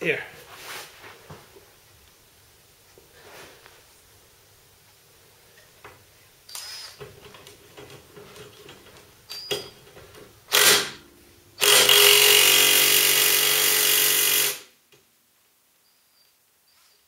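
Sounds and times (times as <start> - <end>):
impact wrench hammering: 11.6 - 14.7.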